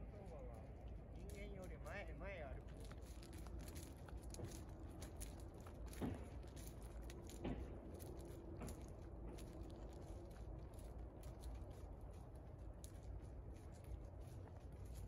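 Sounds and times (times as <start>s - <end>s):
hooves on wood chips: 1.2s - 15.0s
footsteps crunching on wood chips: 2.6s - 11.8s.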